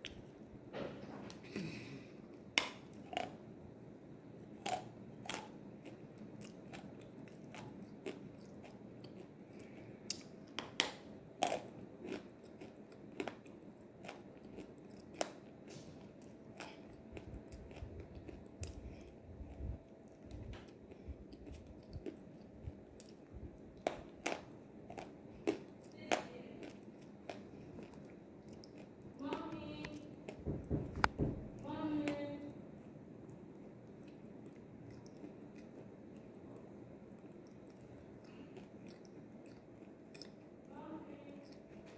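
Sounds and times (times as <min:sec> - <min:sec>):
person chewing crunchy clay: 0:02.3 - 0:03.4, 0:04.5 - 0:29.3, 0:33.2 - 0:40.6.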